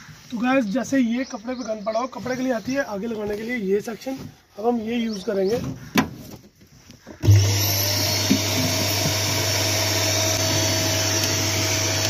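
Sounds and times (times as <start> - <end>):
vacuum cleaner motor humming: 7.2 - 12.0
vacuum nozzle sucking dirt: 7.2 - 12.0.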